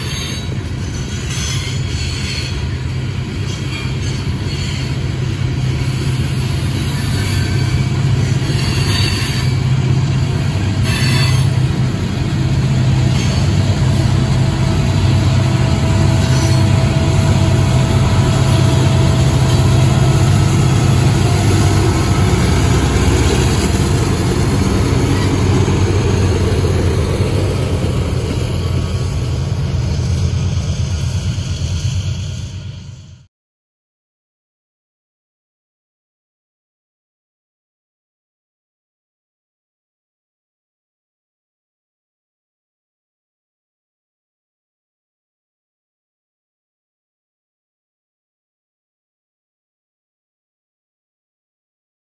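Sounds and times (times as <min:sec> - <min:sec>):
diesel locomotive engine drone: 0:00.0 - 0:33.3
train wheels rolling on rails: 0:00.0 - 0:33.3.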